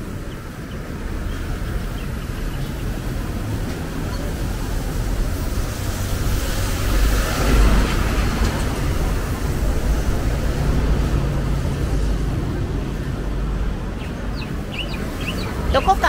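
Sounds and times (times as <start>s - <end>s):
street traffic rumble: 0.0s - 16.0s
vehicle passing close by: 0.0s - 16.0s.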